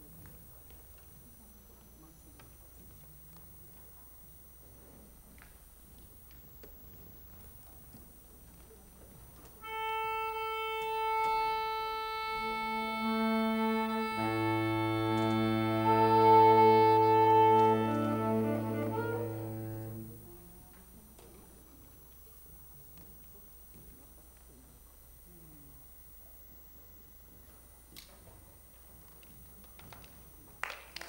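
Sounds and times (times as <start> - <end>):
saxophone quartet playing: 9.6 - 20.6.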